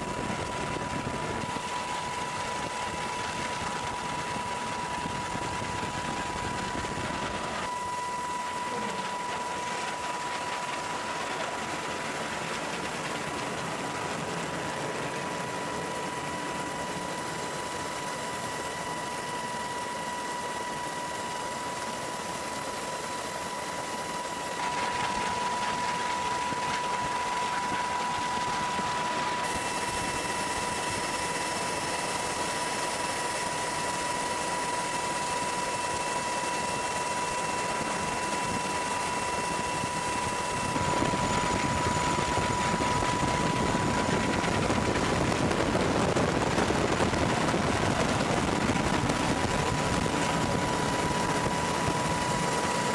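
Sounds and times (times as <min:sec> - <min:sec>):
jet fighter engine roar: 0:34.2 - 0:52.9
high engine whine: 0:37.3 - 0:52.9.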